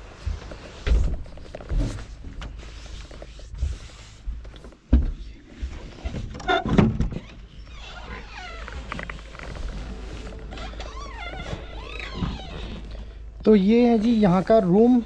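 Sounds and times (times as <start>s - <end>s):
wooden door creaking: 5.9s - 13.5s.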